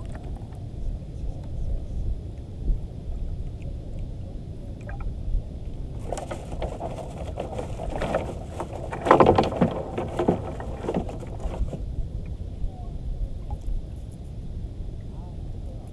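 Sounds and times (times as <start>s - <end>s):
low wind rumble: 0.0s - 15.9s
water splashing around a boat: 5.8s - 12.2s.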